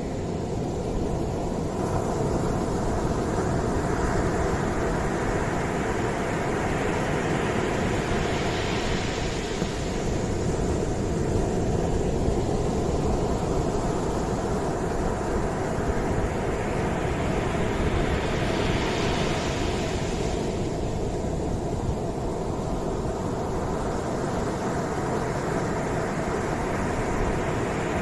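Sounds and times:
low rumble of surf: 0.0s - 28.0s
surf washing up beach: 0.0s - 28.0s.

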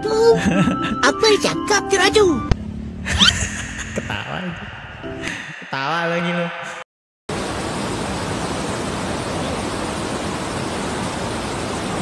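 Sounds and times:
steady rushing noise: 3.4s - 12.0s.

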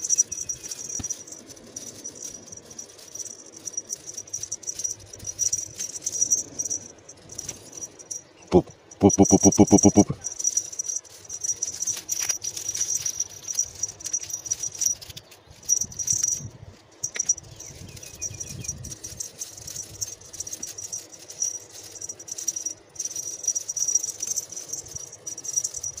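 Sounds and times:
insect trilling high-pitched: 0.0s - 12.3s
kitten batting string toy: 0.0s - 26.0s.

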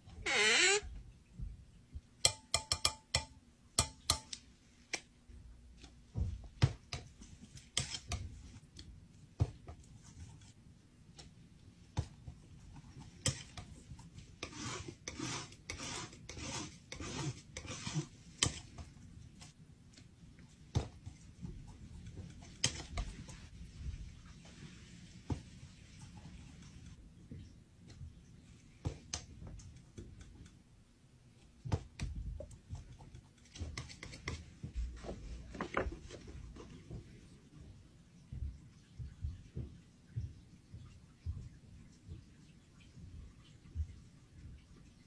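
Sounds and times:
palette knife scraping paint: 6.9s - 8.9s, 12.8s - 19.6s, 32.4s - 34.5s.

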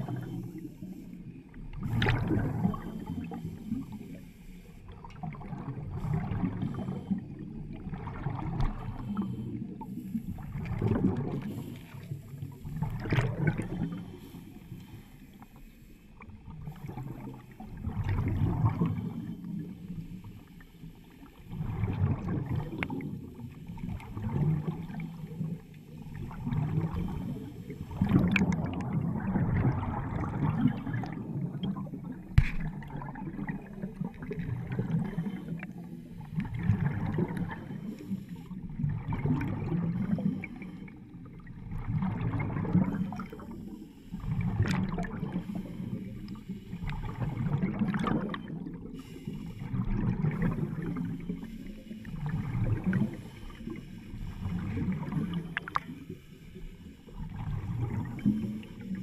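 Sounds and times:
underwater bubbling exhaled breath: 0.0s - 59.0s.

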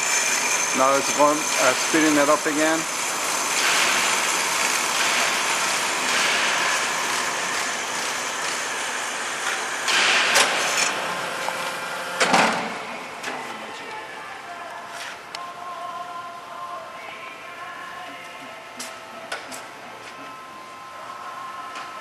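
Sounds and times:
harsh saw bursts: 0.0s - 11.0s
band saw running: 0.0s - 12.2s.

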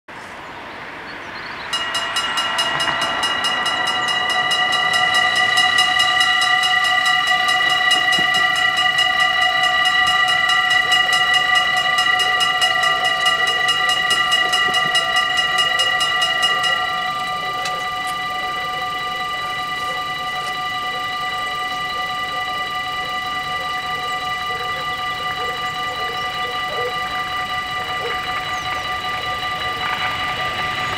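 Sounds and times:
level crossing warning bells ringing: 0.6s - 30.9s.

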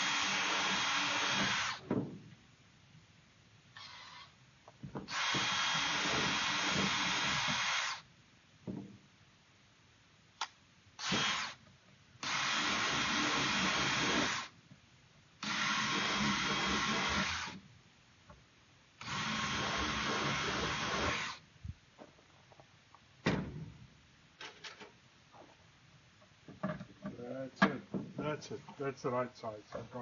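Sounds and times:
power drill boring into plastic: 0.0s - 1.8s, 3.8s - 4.3s, 5.1s - 8.0s, 11.0s - 11.6s, 12.2s - 14.5s, 15.4s - 17.6s, 19.0s - 21.4s.

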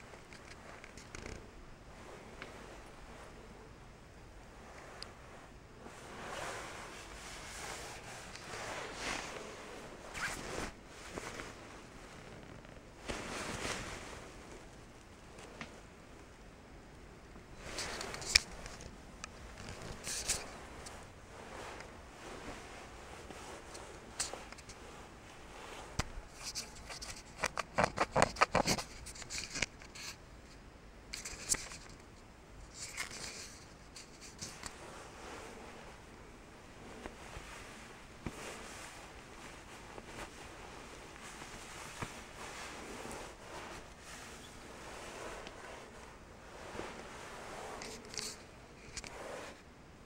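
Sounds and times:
coat fabric rustling: 0.0s - 16.5s, 17.4s - 28.0s, 31.8s - 50.0s
zipper being worked: 10.1s - 10.7s.

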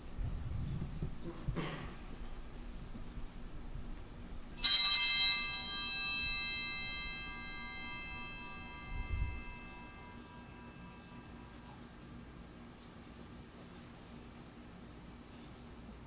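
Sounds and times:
altar bells jangling: 1.6s - 11.6s.

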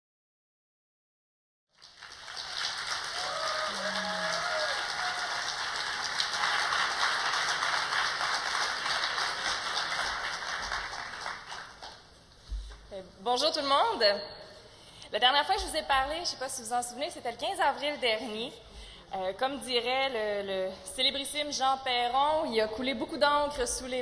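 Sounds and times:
audience applauding: 1.8s - 12.1s.

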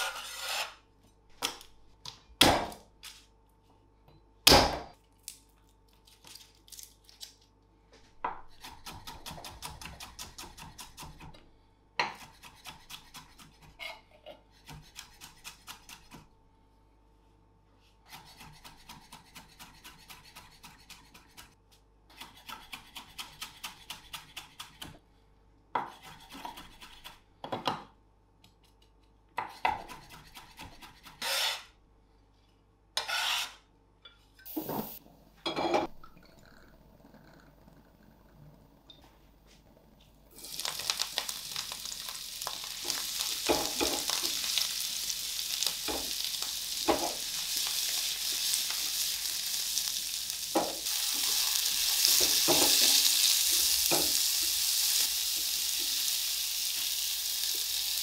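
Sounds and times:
bench scraper scraping board: 0.0s - 0.8s, 31.1s - 31.7s, 33.0s - 33.6s.

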